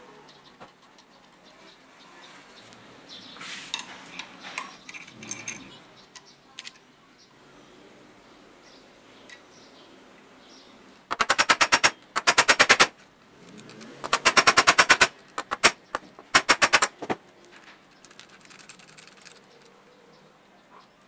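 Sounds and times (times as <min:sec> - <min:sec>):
ratcheting screwdriver clicking: 0:13.5 - 0:15.7.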